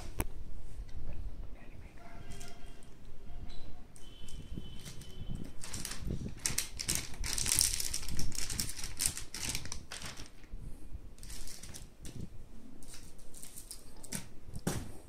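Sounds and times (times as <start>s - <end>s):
plastic bag crinkling: 4.2s - 10.5s, 11.2s - 12.0s.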